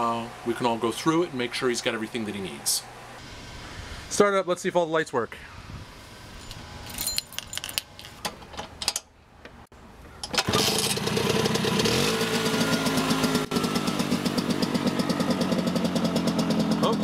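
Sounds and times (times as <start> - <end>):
scooter engine idling: 10.4 - 17.0.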